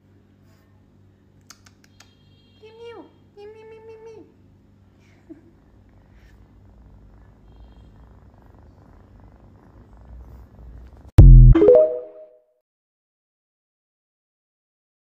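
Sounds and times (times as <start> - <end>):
kitten purring: 5.6 - 11.2
low electronic tone: 11.2 - 12.3.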